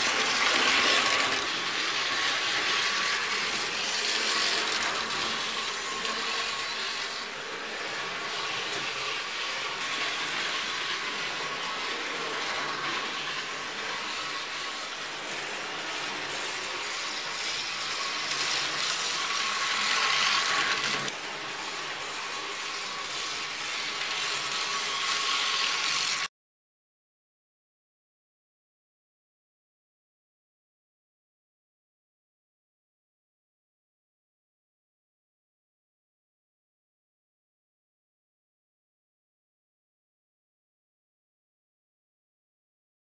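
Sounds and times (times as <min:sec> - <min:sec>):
model train motor hum: 0:00.0 - 0:26.3
model train wheels rattling on rails: 0:00.0 - 0:26.3.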